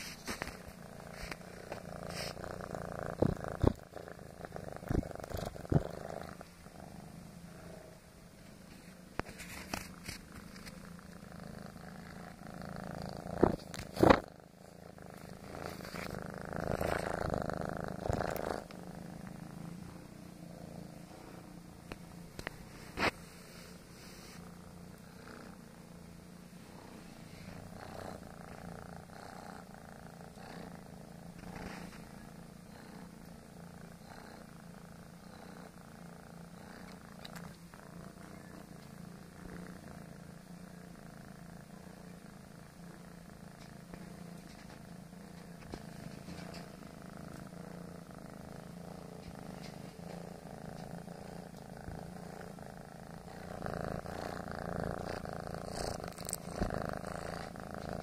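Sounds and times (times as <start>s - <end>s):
soft fur rustles: 0.0s - 2.4s
kitten purring: 0.0s - 58.0s.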